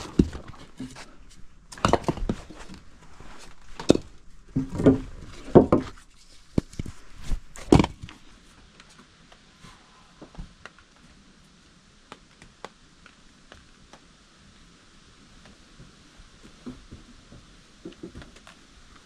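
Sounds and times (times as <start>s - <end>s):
wooden logs knocking together: 0.0s - 2.8s, 3.7s - 6.9s, 7.5s - 8.2s.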